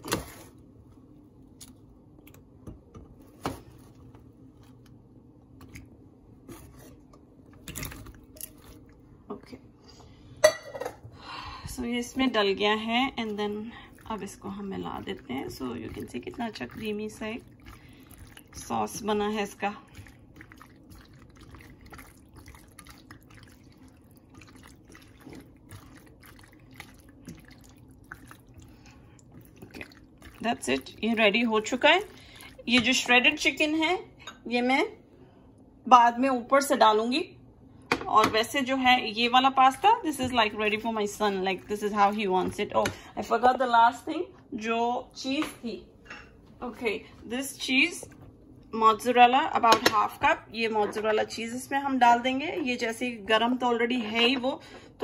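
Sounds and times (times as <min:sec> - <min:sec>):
spatula stirring pasta in sauce: 0:11.8 - 0:33.7, 0:39.2 - 0:43.1
soft wet plops: 0:13.2 - 0:33.2.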